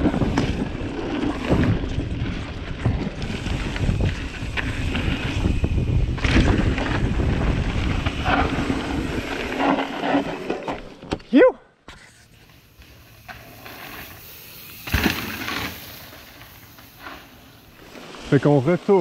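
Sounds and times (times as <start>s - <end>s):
wind buffeting microphone: 0.0s - 9.5s
bike knocking and rattling: 0.0s - 11.3s, 12.4s - 17.9s
tyres rolling on dirt: 0.0s - 11.3s, 12.3s - 19.0s.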